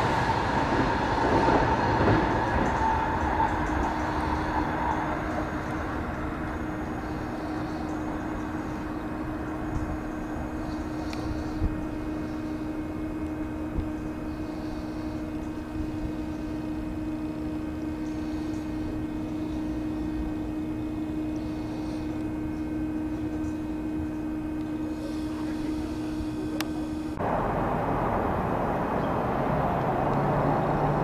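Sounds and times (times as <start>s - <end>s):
electric trains humming: 0.0s - 31.0s
loud even rushing noise: 27.2s - 31.0s.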